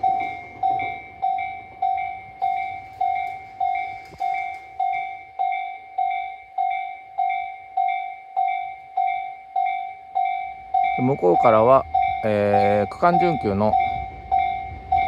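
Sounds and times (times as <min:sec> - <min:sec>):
level crossing warning bell: 0:00.0 - 0:15.0.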